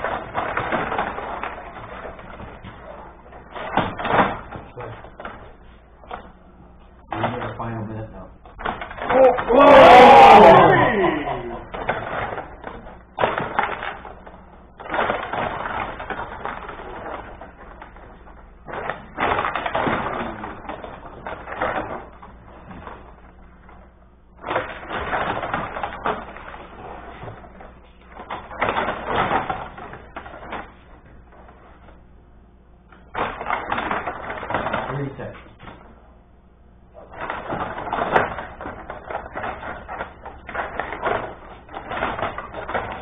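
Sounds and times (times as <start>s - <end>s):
table hockey clicking and clattering: 0.0s - 6.3s, 8.5s - 23.8s, 24.4s - 32.0s, 32.9s - 35.9s, 37.0s - 43.0s.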